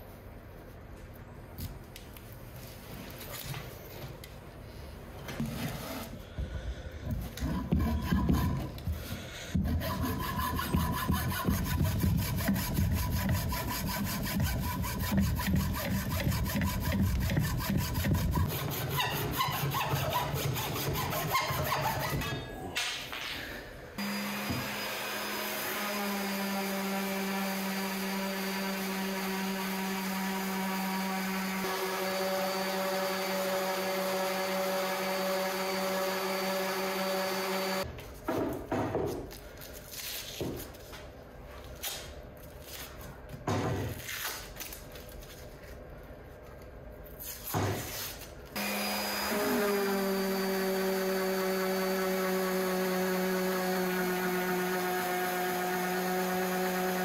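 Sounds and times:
orbital sander humming: 0:24.0 - 0:37.8, 0:48.6 - 0:57.0
masking tape peeling and rustling: 0:43.9 - 0:45.8.

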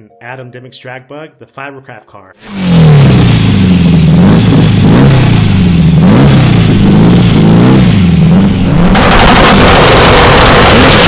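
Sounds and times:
car engine throttle blips: 0:02.4 - 0:11.0.

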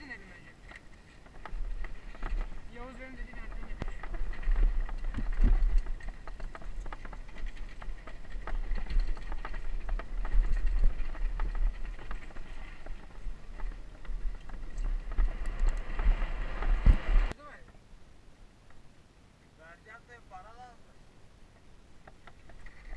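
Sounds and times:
bike rattling and knocking: 0:00.6 - 0:17.4
wind rumble on microphone: 0:00.6 - 0:17.4.

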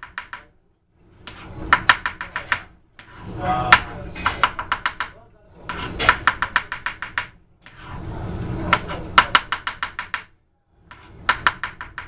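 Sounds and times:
knife chopping on cutting board: 0:01.3 - 0:08.0, 0:08.7 - 0:10.2, 0:10.9 - 0:12.0.

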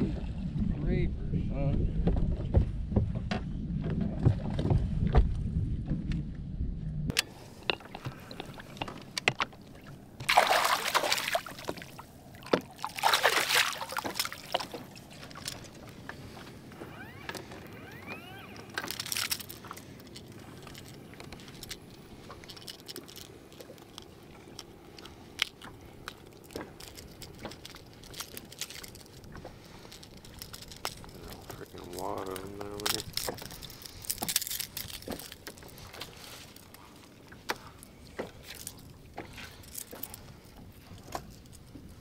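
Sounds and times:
fish splashing at the surface: 0:10.2 - 0:14.9
small clicks and rattles: 0:17.3 - 0:36.8.

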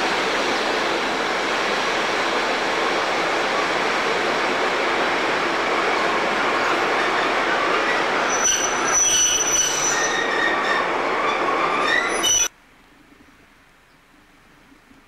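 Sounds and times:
train wheels rumbling and rattling: 0:00.0 - 0:12.5
high wheel squeals: 0:06.8 - 0:12.5.

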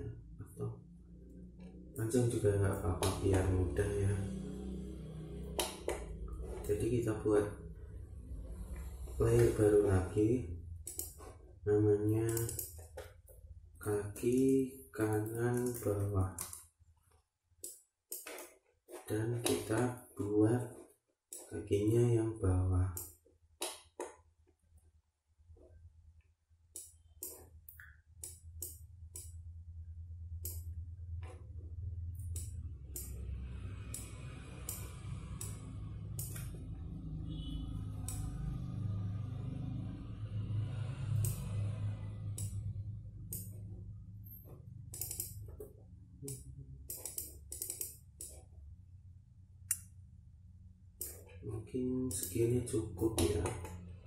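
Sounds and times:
bass line: 0:00.0 - 0:12.6
low hum: 0:00.0 - 0:16.9, 0:26.8 - 0:54.0
mouse and keyboard clicks: 0:10.8 - 0:11.2, 0:44.9 - 0:45.7, 0:46.3 - 0:48.4
cymbal ticks: 0:32.2 - 0:33.3, 0:33.9 - 0:35.6, 0:36.2 - 0:36.5, 0:38.0 - 0:38.3, 0:41.2 - 0:41.6, 0:42.3 - 0:42.6, 0:44.9 - 0:45.4.

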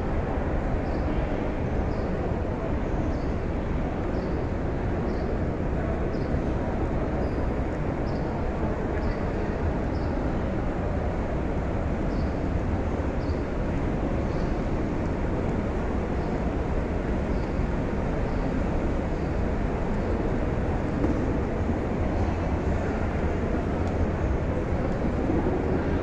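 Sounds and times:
large crowd walking: 0:12.6 - 0:26.0.

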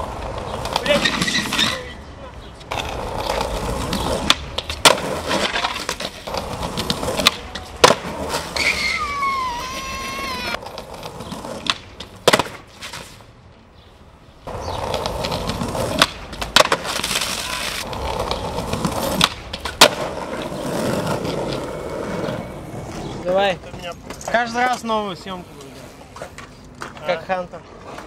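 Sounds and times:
skateboard wheels rolling on pavement: 0:00.0 - 0:28.0
skateboard popping and landing: 0:02.7 - 0:13.2, 0:14.5 - 0:23.2.

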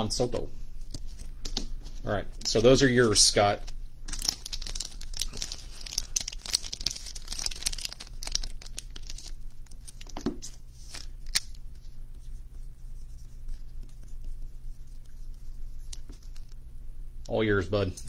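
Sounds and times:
plastic crinkling and rustling: 0:00.8 - 0:11.9.

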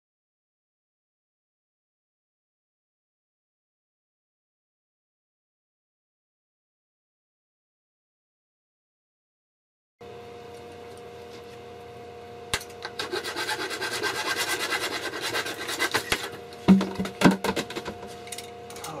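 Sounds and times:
hand saw cutting plastic tube: 0:12.9 - 0:16.4.

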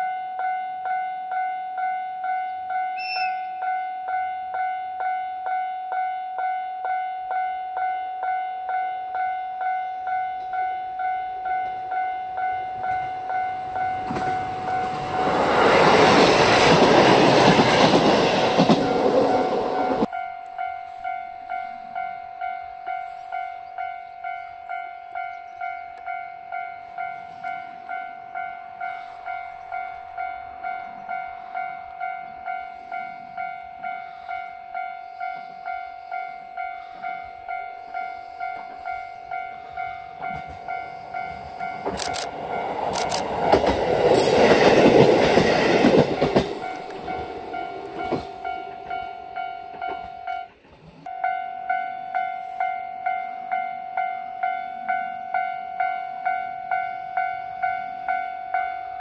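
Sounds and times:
diesel railcar passing: 0:00.0 - 0:59.0
steady pulsing ringing: 0:18.9 - 0:59.0.

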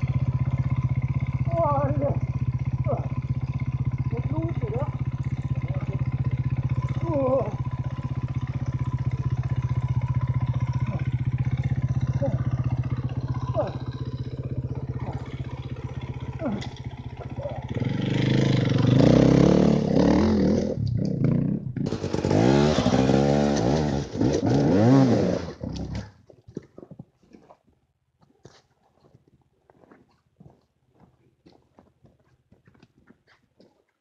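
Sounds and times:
motorcycle engine revving: 0:00.0 - 0:26.1.

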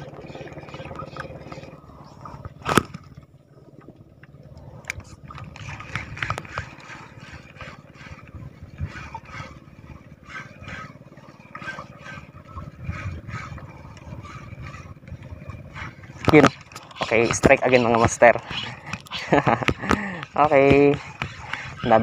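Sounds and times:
fishing reel knocks and scrapes: 0:16.2 - 0:22.0.

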